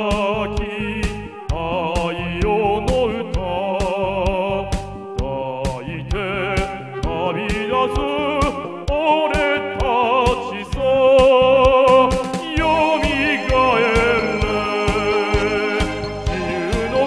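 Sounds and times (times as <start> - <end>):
backing track: 0.0 - 17.0
drum beats: 0.0 - 17.0
man singing with vibrato: 0.0 - 17.0.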